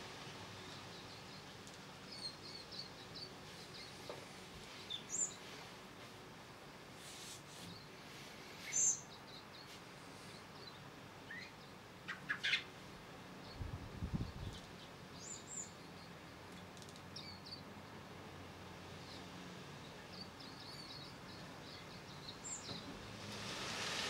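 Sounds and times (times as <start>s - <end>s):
birds chirping: 19.0s - 23.2s.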